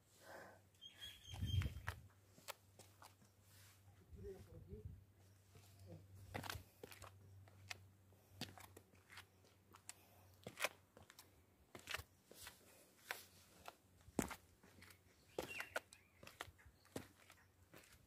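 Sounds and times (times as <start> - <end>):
footsteps crunching on gravel: 6.2 - 7.8.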